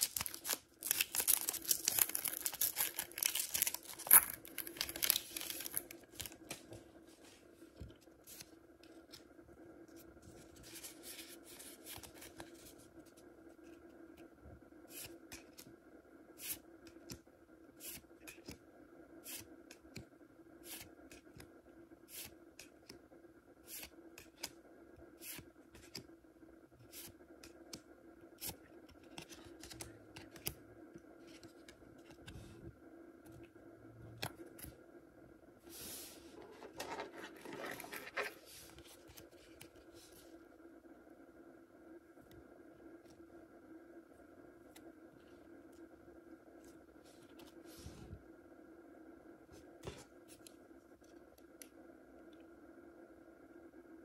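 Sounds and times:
cards rustling: 0.0s - 7.4s, 36.3s - 40.1s
faint steady hum: 0.0s - 54.0s.

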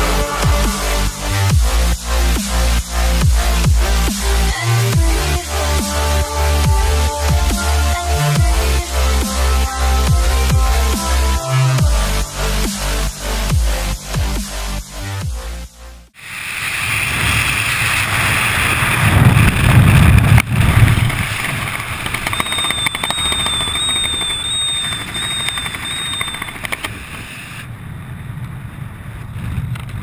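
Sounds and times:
wind rushing over camera: 16.2s - 30.0s
faint wavering high tone: 22.2s - 27.6s.

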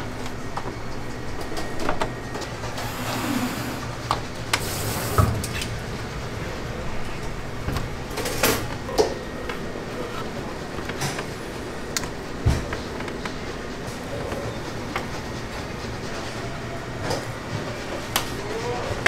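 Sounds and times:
steady low hum: 0.0s - 19.0s
scattered clicks and knocks: 7.2s - 18.7s.

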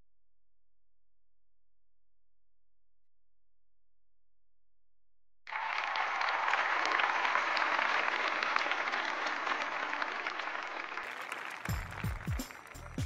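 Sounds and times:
audience applause: 5.5s - 13.0s.

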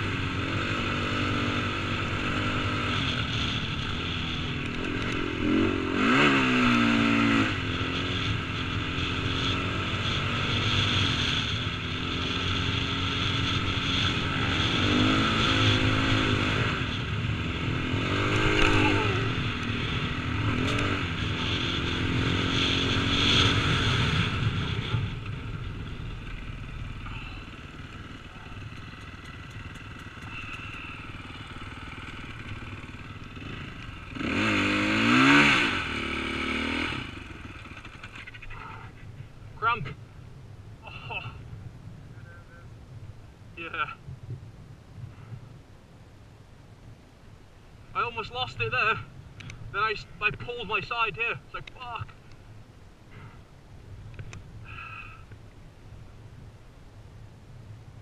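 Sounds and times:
dirt bike engine revving: 0.0s - 38.8s.

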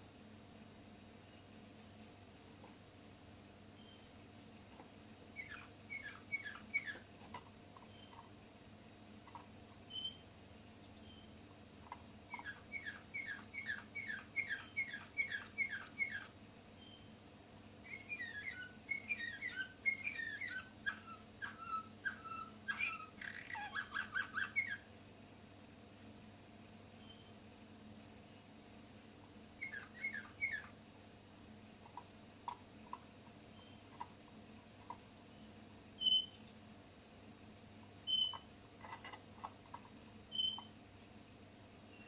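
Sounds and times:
canary singing: 3.8s - 8.3s, 9.2s - 10.3s, 11.0s - 17.2s, 17.8s - 24.9s, 27.0s - 27.4s, 29.6s - 30.8s, 31.8s - 34.2s, 36.0s - 36.5s, 38.0s - 40.8s.

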